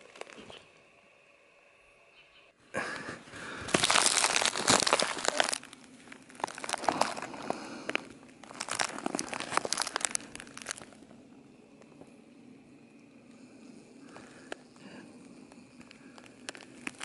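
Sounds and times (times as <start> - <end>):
plastic wrap crinkling: 0.0 - 0.5, 3.6 - 11.1, 15.5 - 17.0.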